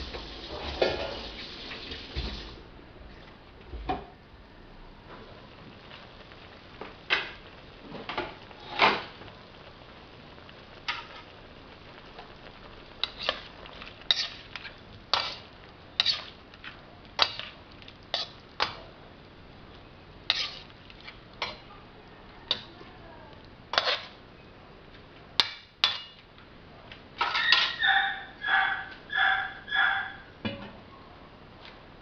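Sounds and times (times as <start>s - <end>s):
metal spatula scraping a wok: 13.0s - 18.8s, 20.3s - 21.7s, 23.7s - 24.2s.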